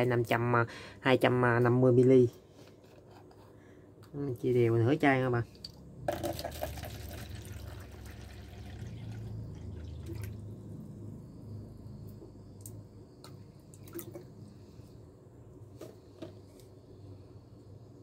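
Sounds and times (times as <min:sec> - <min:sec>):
water pouring into plastic cup: 0:06.1 - 0:10.5.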